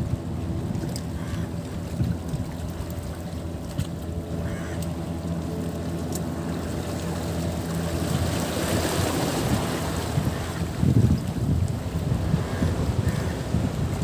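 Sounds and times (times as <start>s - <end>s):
wind buffeting microphone: 0.0s - 3.9s, 7.8s - 14.0s
low engine hum: 0.0s - 14.0s.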